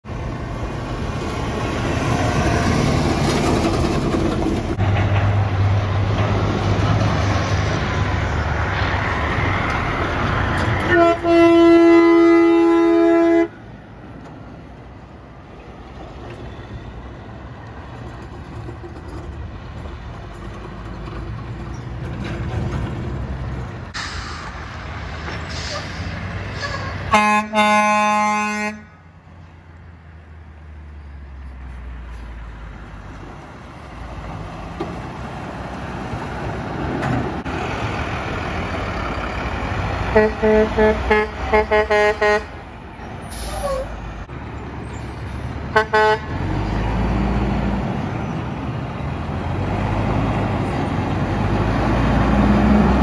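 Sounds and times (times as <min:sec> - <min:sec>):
diesel truck passing: 0:00.0 - 0:53.0
traffic rumble: 0:00.0 - 0:53.0
truck air horn: 0:10.8 - 0:13.6, 0:26.5 - 0:29.0, 0:40.1 - 0:42.6, 0:45.7 - 0:46.4.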